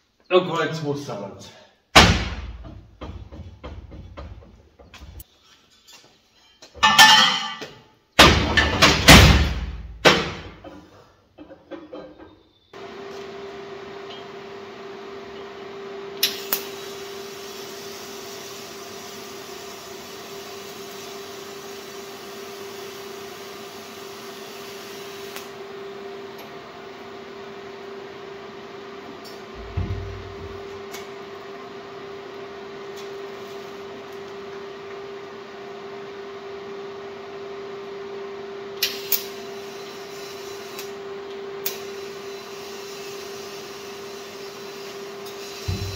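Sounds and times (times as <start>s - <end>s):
metal parts clanking on workbench: 5.6s - 7.6s
cooling fan humming: 12.8s - 45.9s
welding arc hissing: 16.2s - 25.6s, 38.8s - 41.0s, 41.6s - 45.9s.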